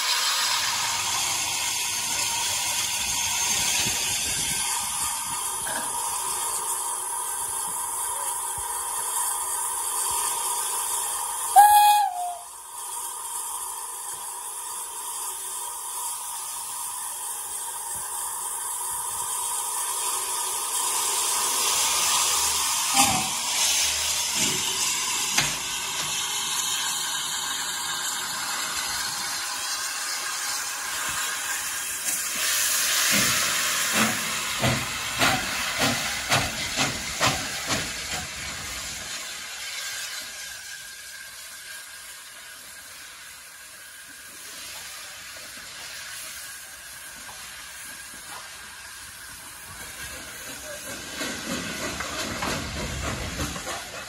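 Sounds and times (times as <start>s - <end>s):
steam locomotive hissing steam: 0.0s - 54.0s
train coaches rolling past: 0.0s - 54.0s
locomotive exhaust beats: 44.2s - 54.0s.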